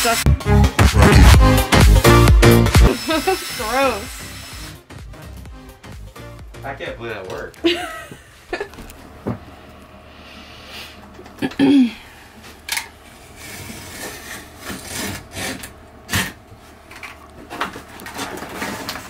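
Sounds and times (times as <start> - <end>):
hand tool scraping vinyl floor: 13.2 - 16.3.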